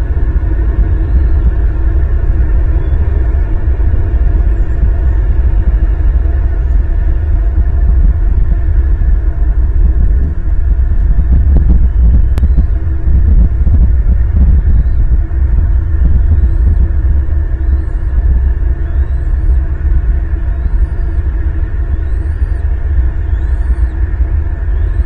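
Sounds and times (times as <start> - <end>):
low background rumble: 0.0 - 25.0
faint high bird chirps: 17.6 - 18.1, 18.8 - 19.6, 20.5 - 21.2, 22.0 - 24.0.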